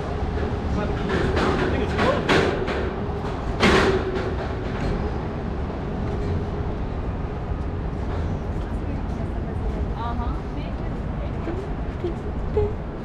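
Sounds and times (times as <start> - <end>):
low city rumble: 0.0 - 13.0.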